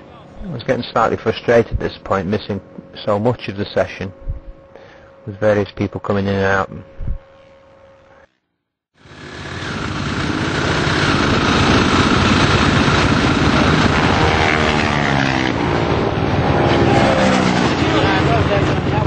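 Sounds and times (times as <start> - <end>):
racing motorcycle engine: 9.0 - 19.0.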